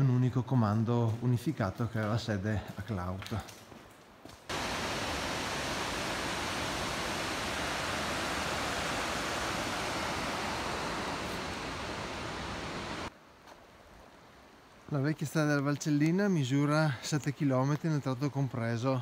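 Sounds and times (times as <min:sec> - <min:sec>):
mountain stream rushing: 0:04.5 - 0:13.1.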